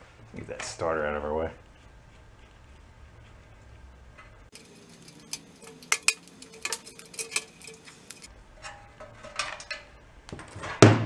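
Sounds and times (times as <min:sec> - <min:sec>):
metal clinking and knocking: 0:04.2 - 0:11.0.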